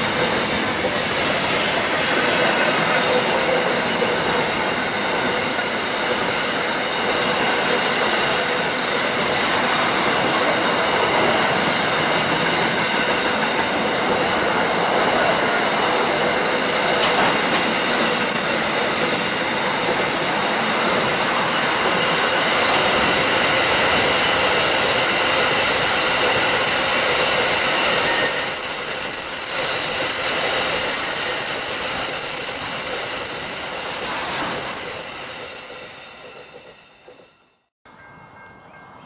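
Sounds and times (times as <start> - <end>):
freight train wheels on rails: 0.0 - 39.0.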